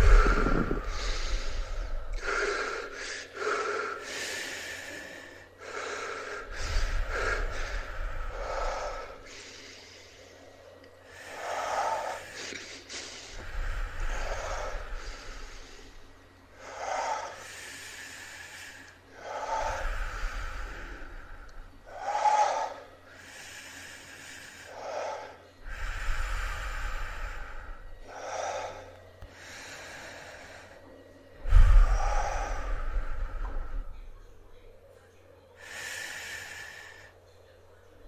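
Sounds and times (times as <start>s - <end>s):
low thump of air: 0.0s - 1.4s
breath blowing on microphone: 0.0s - 3.1s, 31.4s - 34.3s
person gasping for breath: 0.0s - 4.1s.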